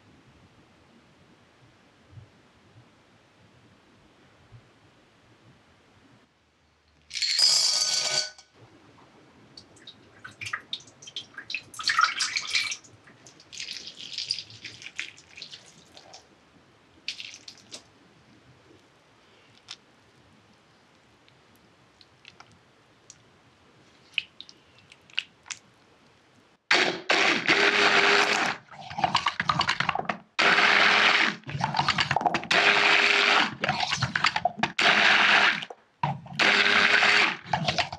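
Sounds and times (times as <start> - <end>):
milk pouring: 9.8 - 16.2.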